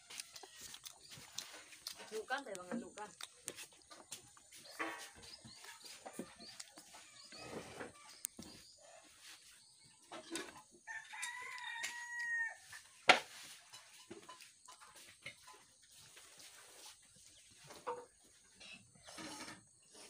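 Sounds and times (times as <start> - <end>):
rooster crowing: 10.8 - 12.8.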